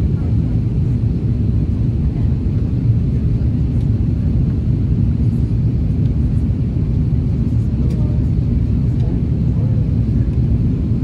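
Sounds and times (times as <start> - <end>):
airliner cabin engine rumble: 0.0 - 11.0.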